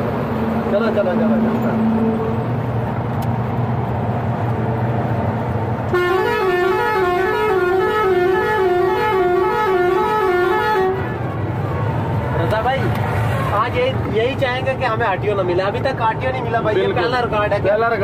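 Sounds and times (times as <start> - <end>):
musical horn warbling tune: 5.9 - 11.2.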